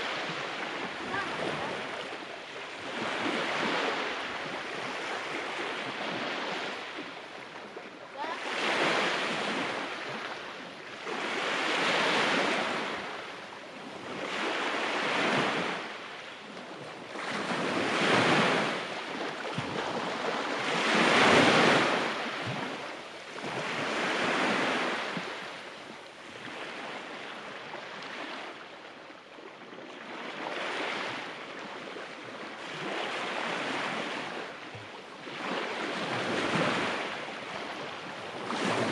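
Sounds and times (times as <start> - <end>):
waves washing on pebble beach: 35.3 - 38.9.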